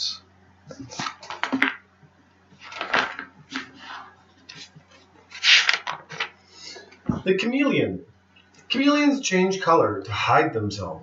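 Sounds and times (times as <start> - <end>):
faint steady hum: 0.0 - 11.0
handling rustles and clatters: 2.6 - 6.4.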